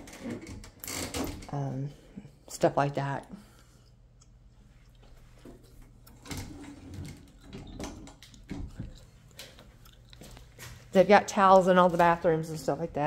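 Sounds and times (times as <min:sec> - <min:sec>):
closet doors knocking and scraping: 0:05.5 - 0:09.0.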